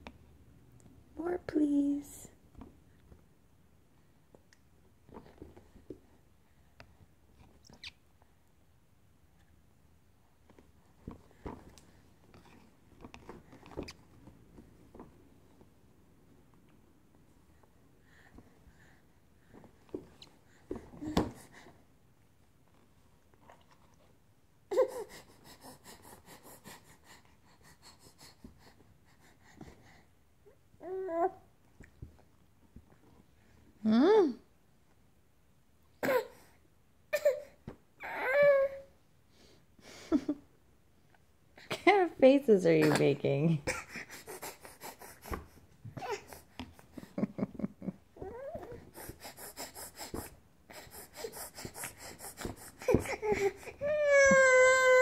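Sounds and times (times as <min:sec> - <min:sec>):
baby fussing and whimpering: 0:24.7 - 0:30.0, 0:36.0 - 0:38.9, 0:42.8 - 0:47.1, 0:48.2 - 0:55.0
baby vocal sound: 0:48.2 - 0:55.0.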